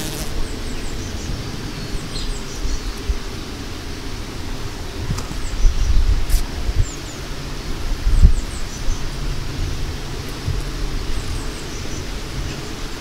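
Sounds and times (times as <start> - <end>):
steady outdoor hiss: 0.0 - 13.0
wind rumble on microphone: 0.0 - 13.0.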